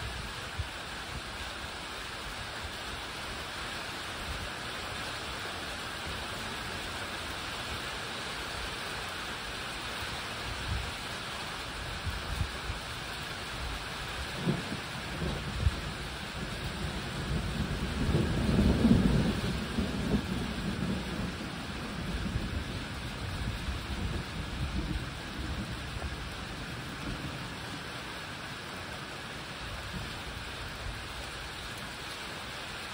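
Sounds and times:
rain hiss: 0:00.0 - 0:32.9
rolling thunder: 0:14.4 - 0:27.7.

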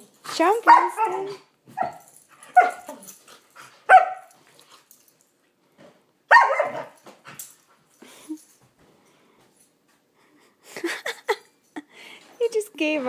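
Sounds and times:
dogs barking: 0:00.6 - 0:03.0, 0:03.9 - 0:04.4, 0:06.3 - 0:07.0.

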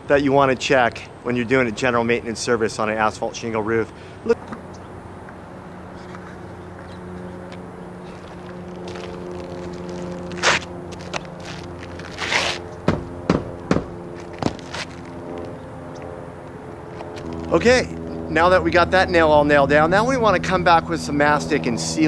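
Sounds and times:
hammer striking nail: 0:12.8 - 0:13.9.

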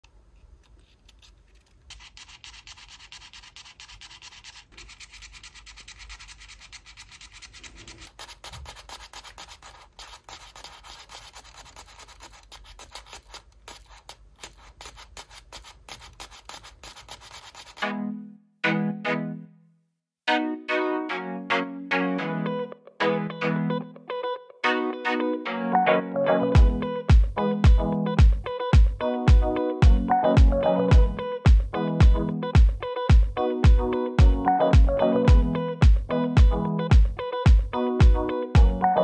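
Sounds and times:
paper toys clicking: 0:01.0 - 0:17.8.

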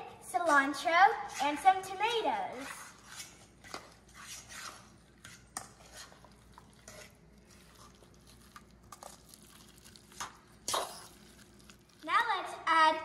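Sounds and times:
utensil scraping metal bowl: 0:02.5 - 0:08.0.

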